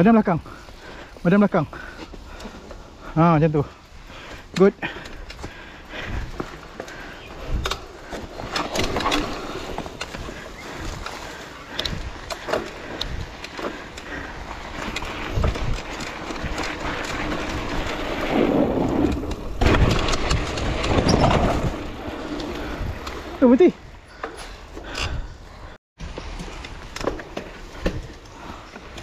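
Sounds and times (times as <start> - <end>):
wind and tyre noise: 0.0 - 29.0
bike knocks and rattles: 4.5 - 23.4, 26.0 - 29.0.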